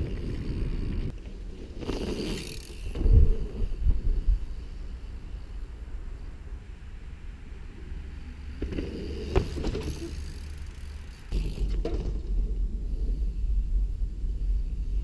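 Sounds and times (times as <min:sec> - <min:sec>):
bike clicks and rattles: 0:00.0 - 0:03.6, 0:08.6 - 0:12.8
low rumble: 0:12.2 - 0:15.0.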